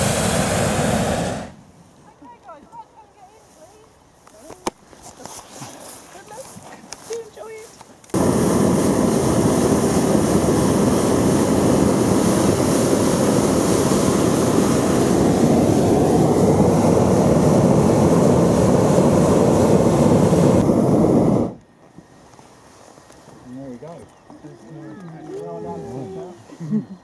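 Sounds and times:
propane burner blast: 0.0s - 1.7s, 8.1s - 21.6s.

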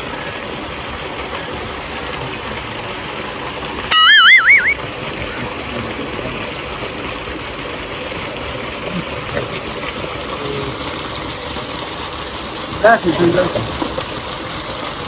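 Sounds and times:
water gushing into a tank: 0.0s - 15.0s
loud warbling tone: 3.8s - 4.8s.

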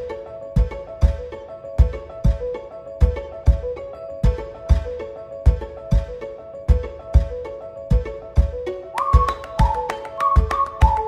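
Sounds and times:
low drum beat: 0.6s - 11.0s
high held melody line: 9.0s - 11.0s.

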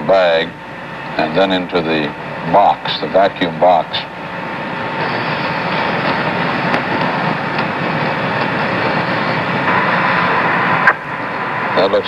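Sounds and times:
radio static: 0.0s - 12.0s.

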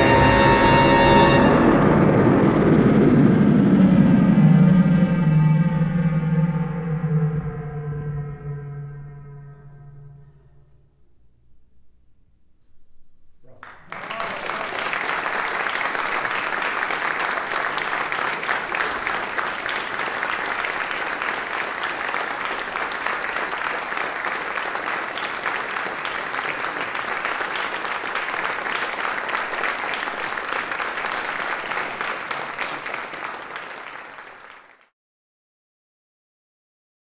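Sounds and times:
audience applause: 13.6s - 34.9s.

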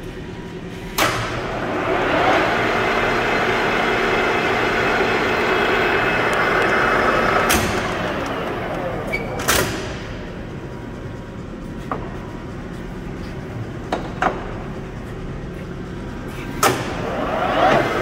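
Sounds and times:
lathe gears whining: 1.4s - 11.2s.

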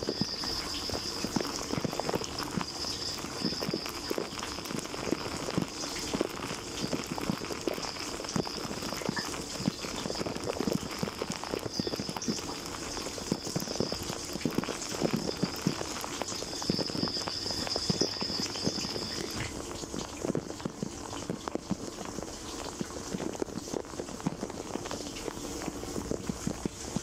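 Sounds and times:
thin high whine: 0.0s - 27.0s.

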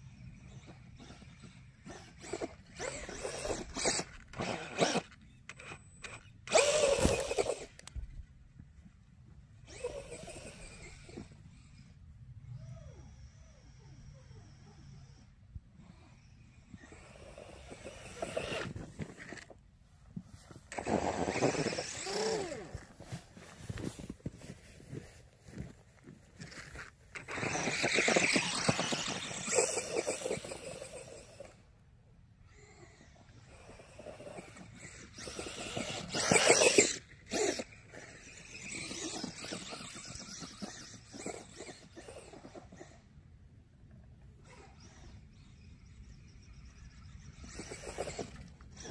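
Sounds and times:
electric motor whining: 0.4s - 7.9s, 9.7s - 11.9s, 12.6s - 19.5s, 20.7s - 23.1s, 27.1s - 31.7s, 32.5s - 43.0s
tires churning snow: 19.9s - 31.6s, 33.0s - 43.0s.

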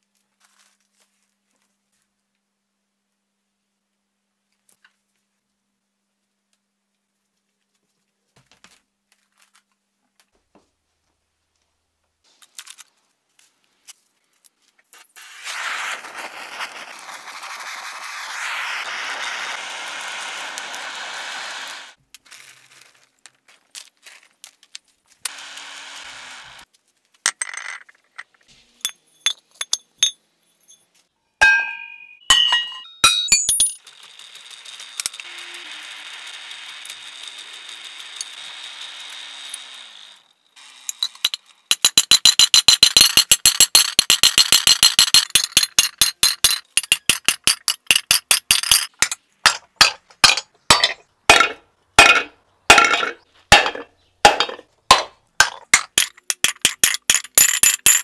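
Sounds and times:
rushing hiss of flame: 15.2s - 22.0s
metallic clinks: 28.8s - 33.8s.

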